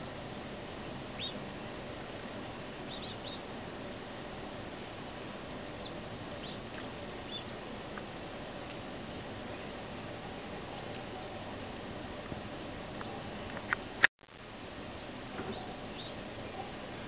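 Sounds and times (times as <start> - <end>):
wind: 0.0 - 17.0
small birds chirping: 0.1 - 1.5, 2.8 - 4.1, 5.7 - 8.8, 9.4 - 11.7, 14.9 - 17.0.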